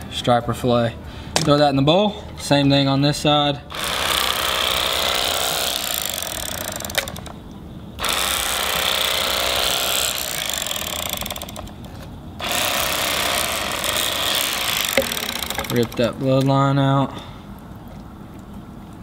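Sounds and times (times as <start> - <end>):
electric knife motor buzzing: 3.7 - 7.3, 8.0 - 16.0.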